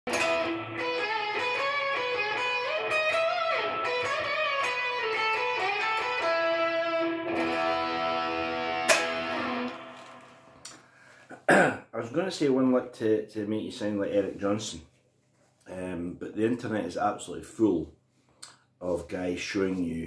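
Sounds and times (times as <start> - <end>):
electric guitar lead lick: 0.1 - 10.8.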